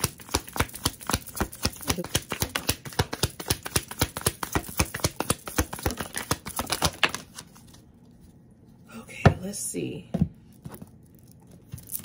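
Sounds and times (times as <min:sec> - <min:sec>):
cards being shuffled: 0:00.0 - 0:08.4.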